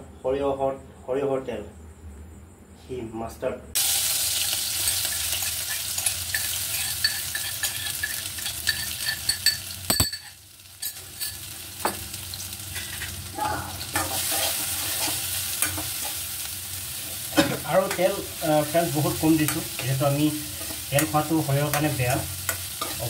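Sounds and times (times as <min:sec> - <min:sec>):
onion sizzling in hot oil: 0:03.8 - 0:23.0
spatula scraping pan: 0:04.8 - 0:10.3, 0:12.7 - 0:13.2, 0:13.8 - 0:16.2.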